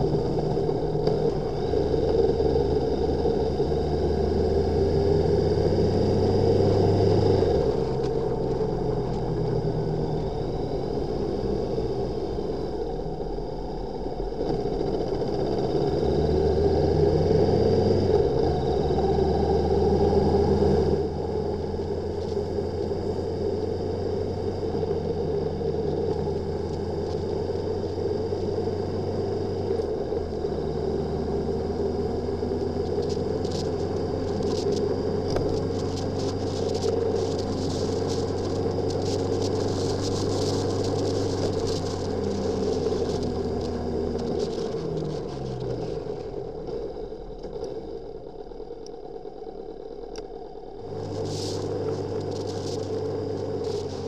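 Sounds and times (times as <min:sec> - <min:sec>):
wind and road noise: 0:00.0 - 0:54.0
motorcycle engine running: 0:18.2 - 0:54.0.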